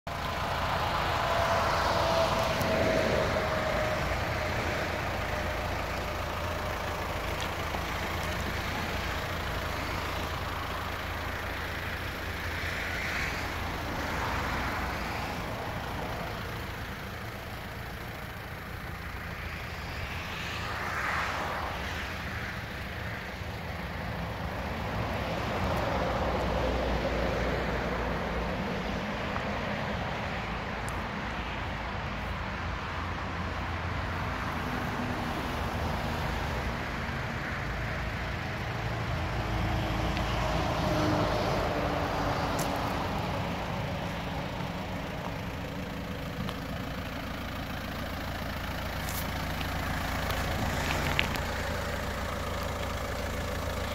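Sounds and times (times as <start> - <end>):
road traffic passing: 0.0 - 53.9.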